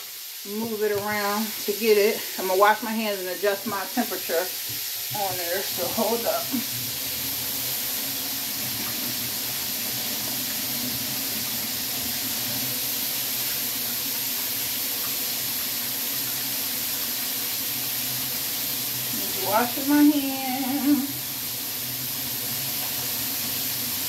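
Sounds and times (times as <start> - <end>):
chicken frying in hot oil: 0.0 - 24.0
kitchen tap running: 0.0 - 24.0.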